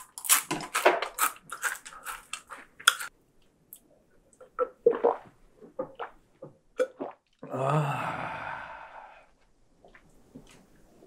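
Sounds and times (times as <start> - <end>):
man gulping beer: 4.5 - 8.2
man sighing ahh: 7.5 - 9.2.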